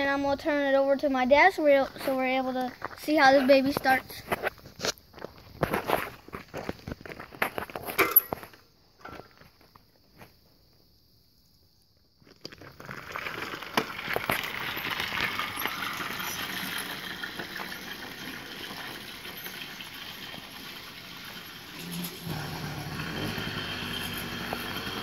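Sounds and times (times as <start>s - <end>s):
small motorized bicycle engine: 13.3s - 25.0s.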